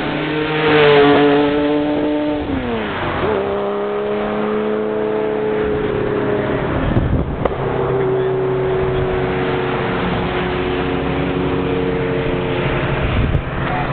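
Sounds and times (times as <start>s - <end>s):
race car driving past: 0.0s - 13.9s.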